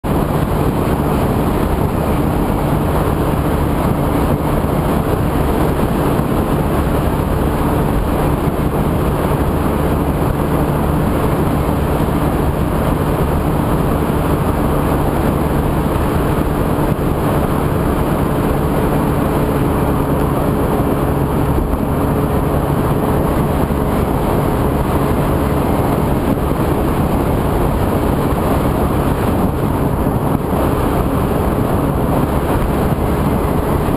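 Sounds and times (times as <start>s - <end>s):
wind and road noise: 0.0s - 33.9s.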